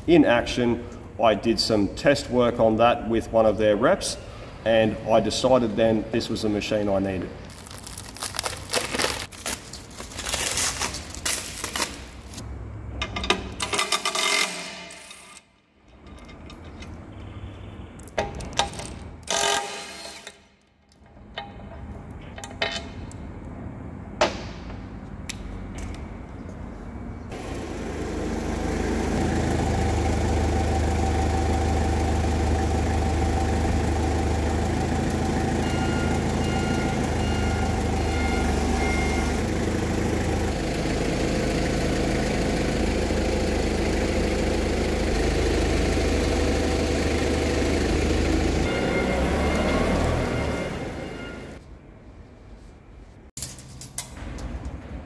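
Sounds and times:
engine idling: 27.3 - 51.6
high beeps: 48.7 - 51.6.

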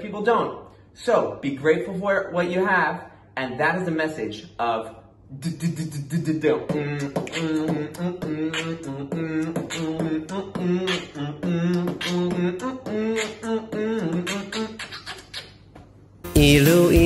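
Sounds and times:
man singing rhythmic syllables: 3.5 - 15.4, 16.3 - 17.0.

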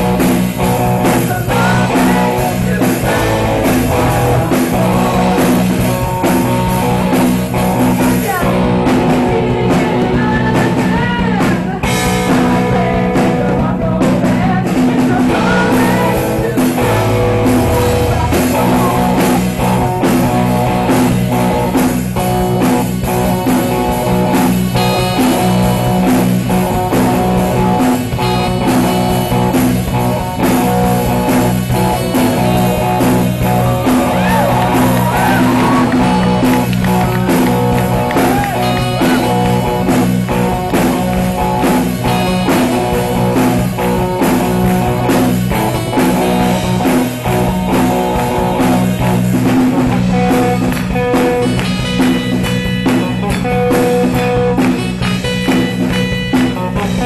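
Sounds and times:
rock band playing: 0.0 - 57.0
person singing: 0.8 - 20.7, 32.4 - 44.4, 56.4 - 57.0.

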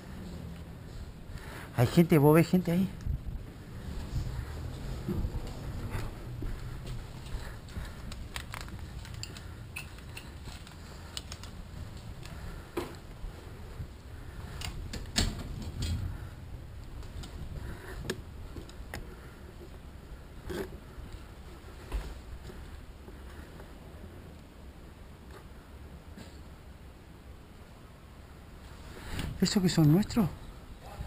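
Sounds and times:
low rumble: 2.9 - 21.3
gear and rifle rattling: 6.9 - 12.5.

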